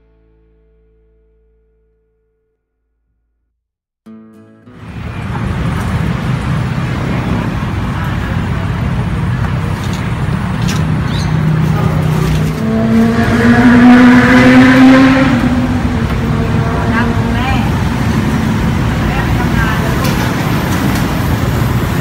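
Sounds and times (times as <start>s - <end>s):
street traffic: 4.7s - 22.0s
vehicle engine hum: 4.8s - 22.0s.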